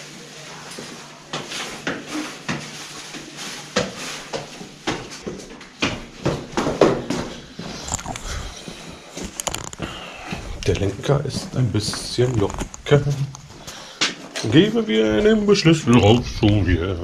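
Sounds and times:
footsteps on concrete stairs: 0.8s - 14.3s.

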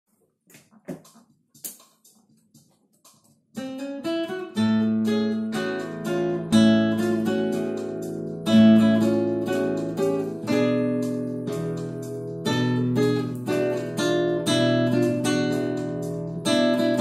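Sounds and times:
fingerstyle acoustic guitar: 3.6s - 17.0s.

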